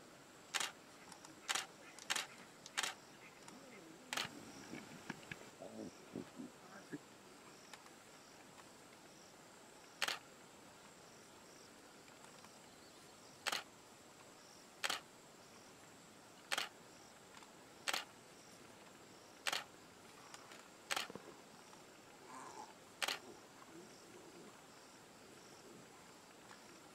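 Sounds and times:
faint outdoor hiss: 0.0s - 26.9s
camera shutter clicks: 0.5s - 3.0s, 10.0s - 10.2s, 13.4s - 13.7s, 14.8s - 15.0s, 16.5s - 16.7s, 17.9s - 18.1s, 19.4s - 19.7s, 20.9s - 21.1s, 23.0s - 23.2s.

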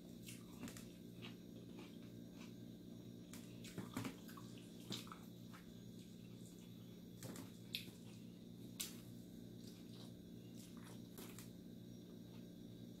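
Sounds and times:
steady low hum: 0.0s - 13.0s
wet chewing and lip-smacking: 0.1s - 2.6s, 9.6s - 11.5s.

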